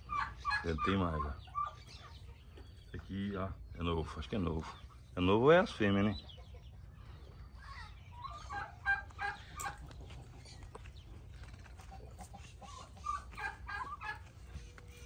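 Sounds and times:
poultry clucking: 0.0 - 15.0.

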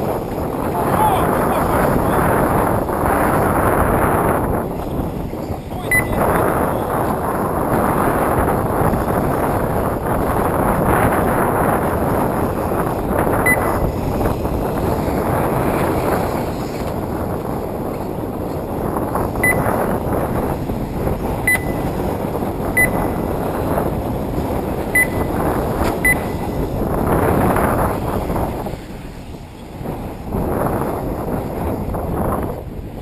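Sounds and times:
wind buffeting microphone: 0.0 - 33.0
short high electronic beeps: 5.9 - 6.2, 19.4 - 19.6, 21.5 - 21.8, 22.8 - 23.0.

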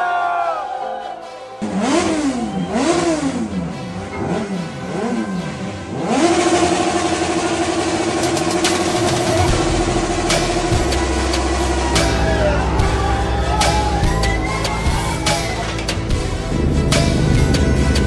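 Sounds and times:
motorcycle engine revving: 1.6 - 13.0.

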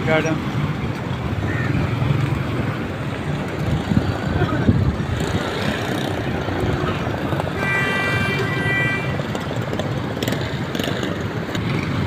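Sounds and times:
road traffic passing: 0.0 - 12.0
car horn: 6.8 - 9.4.

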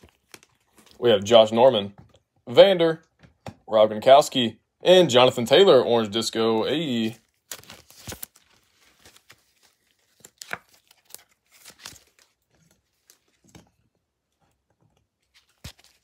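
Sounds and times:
faint plastic crinkling: 0.0 - 1.2.

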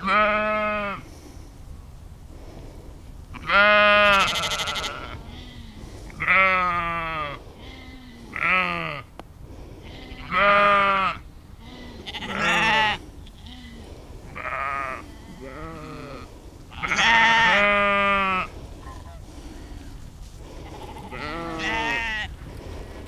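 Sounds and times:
sheep bleating: 0.0 - 1.0, 3.4 - 9.0, 9.9 - 13.8, 14.4 - 18.5, 20.6 - 22.3.

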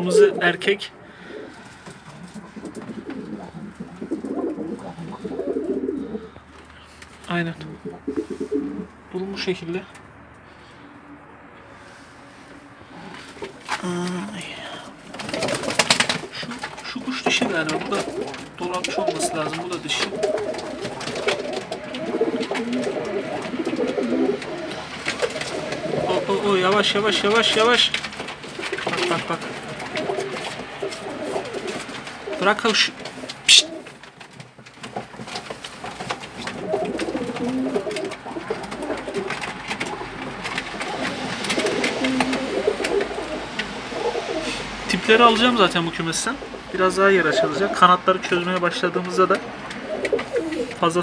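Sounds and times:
pigeons cooing: 0.0 - 9.1, 11.7 - 34.1, 35.1 - 51.0.

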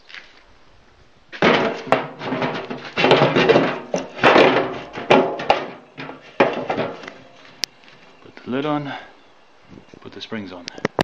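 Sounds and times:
sharp metal knocks: 1.4 - 7.4
metal lid scraping and clanking: 1.4 - 7.5.

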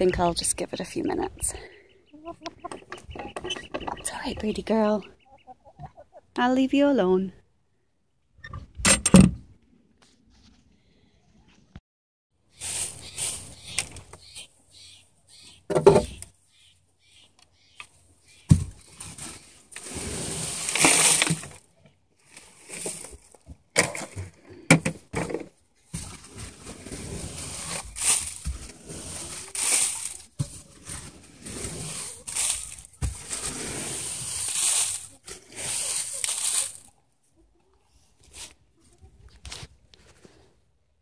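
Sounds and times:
dry bedding rustling and crunching: 12.6 - 14.5, 18.4 - 23.4, 25.8 - 37.0.

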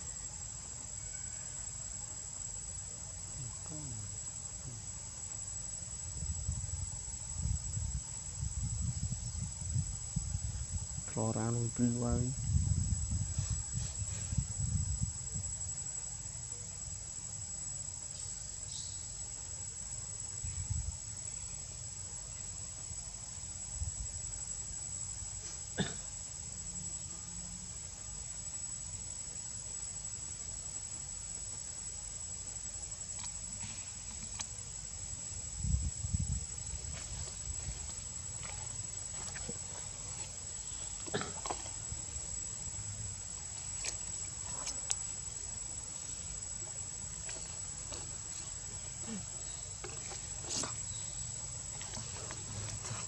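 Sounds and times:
insects chirring: 0.0 - 53.0.

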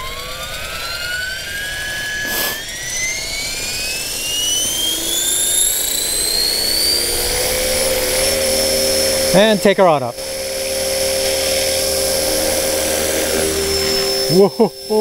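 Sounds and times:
rc helicopter rotor whine rising: 0.0 - 15.0
brief rush of noise: 2.2 - 2.6.

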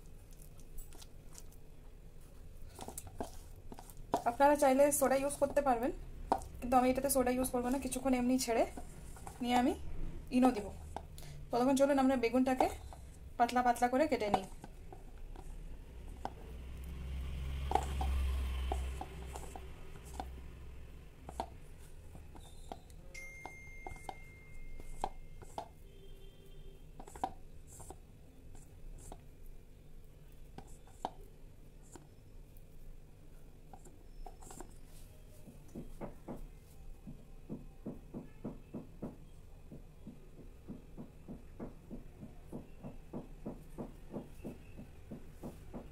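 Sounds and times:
hand mixing batter in bowl: 0.0 - 29.6, 33.6 - 35.0
faint high tone: 23.0 - 26.7.

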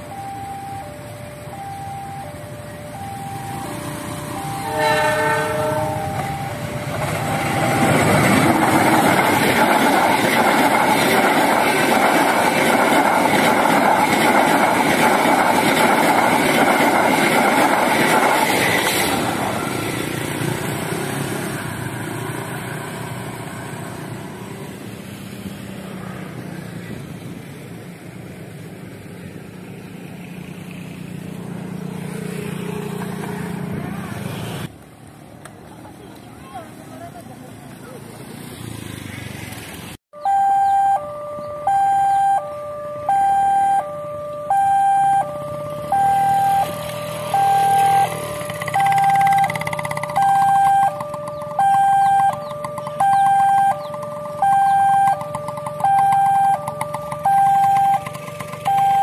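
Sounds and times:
locomotive roar: 0.0 - 36.2, 41.1 - 59.0
train horn blast: 4.6 - 6.3
wheels clacking over rail joints: 5.8 - 20.3, 46.7 - 59.0.

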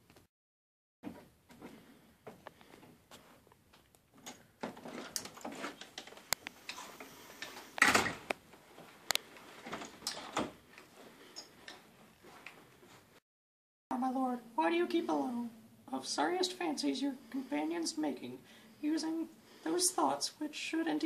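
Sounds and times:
wooden door opening and shutting: 4.2 - 6.2, 6.8 - 8.4, 9.6 - 10.8.

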